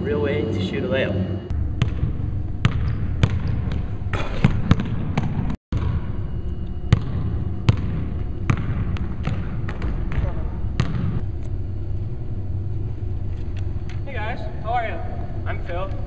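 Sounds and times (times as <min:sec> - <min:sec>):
basketball bouncing on wooden floor: 0:01.8 - 0:06.0, 0:06.9 - 0:11.2.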